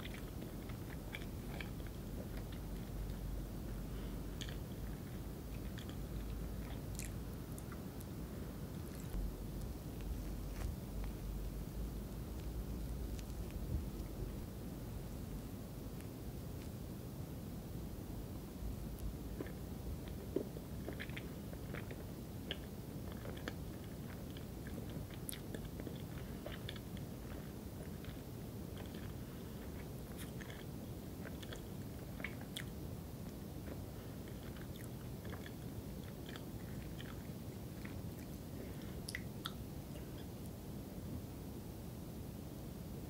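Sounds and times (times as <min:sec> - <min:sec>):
faint room noise: 0:00.0 - 0:43.0.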